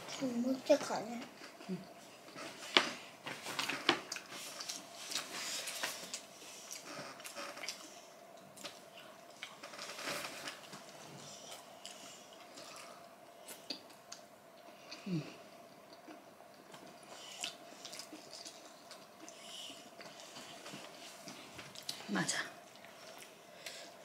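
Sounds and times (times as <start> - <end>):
wet chewing: 15.8 - 20.8.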